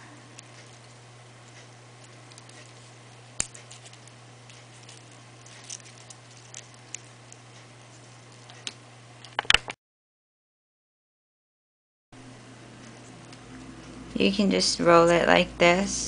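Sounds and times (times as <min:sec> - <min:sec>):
steady low hum: 0:00.0 - 0:09.4, 0:12.2 - 0:16.0
paper crackling being rolled up: 0:00.5 - 0:09.6.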